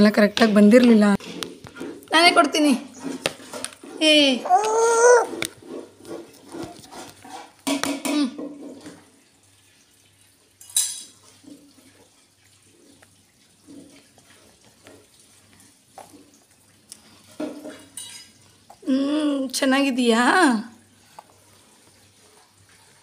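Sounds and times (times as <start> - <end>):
baby vocal sound: 4.2 - 5.6.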